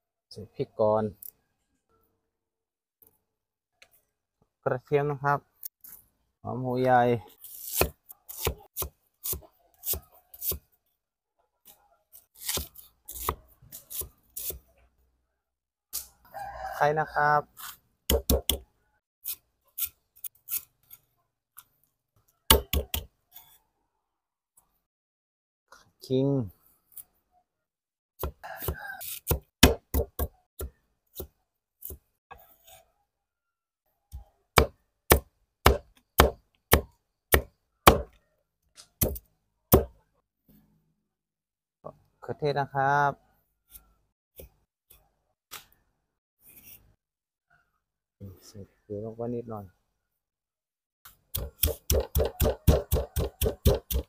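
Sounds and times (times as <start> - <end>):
knife chopping on wooden block: 7.7 - 10.6, 18.1 - 18.6, 22.5 - 23.1, 28.2 - 32.0, 34.6 - 38.2, 39.0 - 39.9, 51.4 - 54.0.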